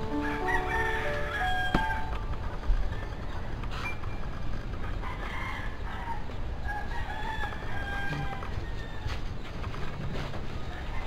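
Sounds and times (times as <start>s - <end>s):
rooster crowing: 0.0s - 2.1s, 5.0s - 9.2s
low background noise: 0.0s - 11.0s.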